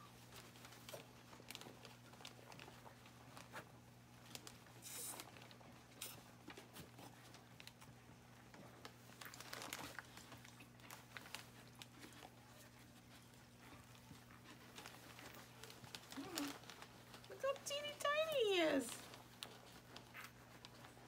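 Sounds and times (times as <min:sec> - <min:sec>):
paper bedding crinkling: 0:08.7 - 0:13.2, 0:13.9 - 0:21.0.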